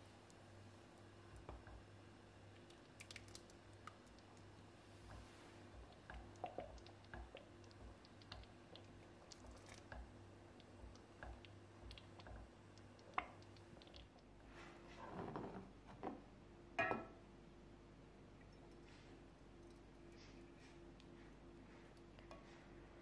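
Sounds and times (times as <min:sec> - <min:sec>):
spoon stirring thick jam: 0:02.6 - 0:14.2.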